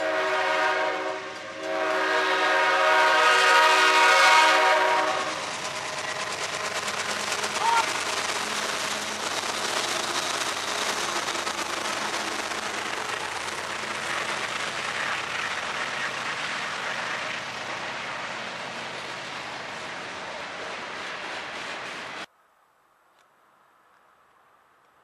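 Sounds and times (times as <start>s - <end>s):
train wheels rushing on rails: 0.0s - 22.3s.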